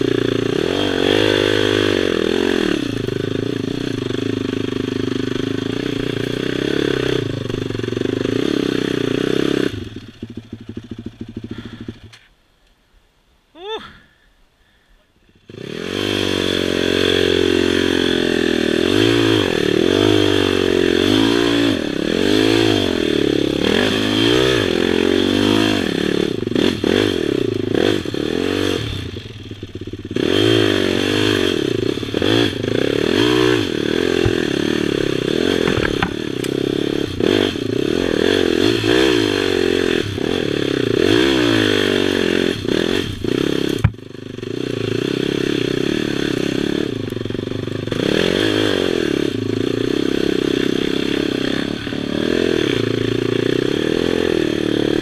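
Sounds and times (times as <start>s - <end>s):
quad engine revving: 0.0s - 12.2s, 15.4s - 55.0s
clattering and scraping over ground: 34.1s - 34.8s, 35.5s - 36.6s.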